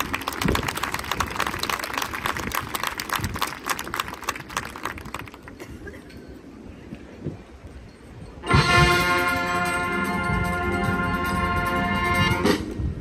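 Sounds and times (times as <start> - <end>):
dense patter of sharp claps: 0.0 - 5.6.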